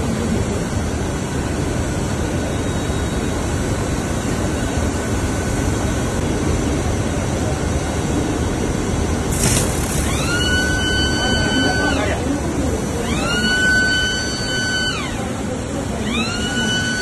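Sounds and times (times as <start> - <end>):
printing machine running: 9.2 - 17.0
high steady tone: 13.0 - 17.0.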